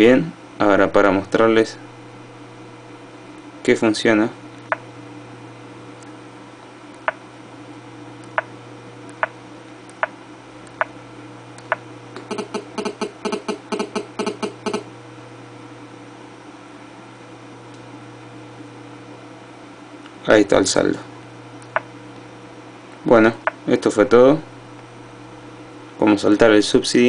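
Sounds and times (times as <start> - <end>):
stylus tapping: 8.2 - 8.5, 21.6 - 21.9.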